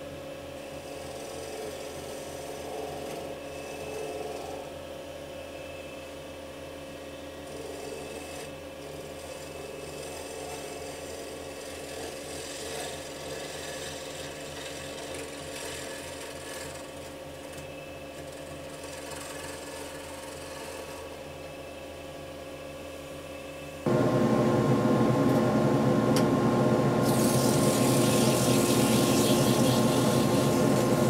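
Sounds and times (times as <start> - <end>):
wood lathe motor hum: 0.6 - 4.8, 7.2 - 21.6, 23.9 - 31.0
gouge rasping cut: 7.5 - 17.0, 18.2 - 21.0, 27.0 - 31.0.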